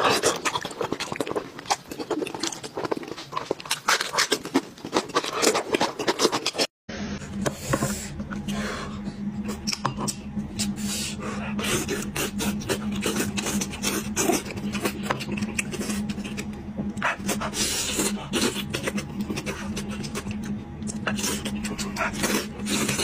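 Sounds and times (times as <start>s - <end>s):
chewing and slurping: 0.0s - 6.7s, 11.6s - 23.0s.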